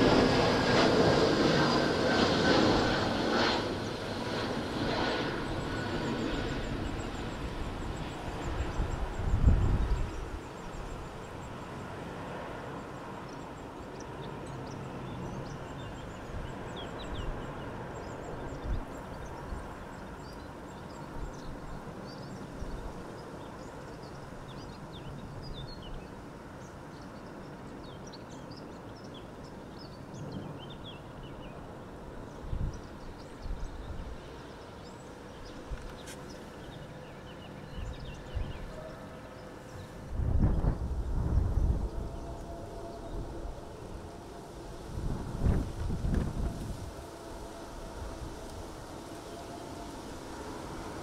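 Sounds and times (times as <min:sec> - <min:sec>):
distant jet aircraft: 0:00.0 - 0:51.0
wind rushing: 0:40.0 - 0:51.0
wind buffeting thumps: 0:40.1 - 0:42.4, 0:44.9 - 0:47.0.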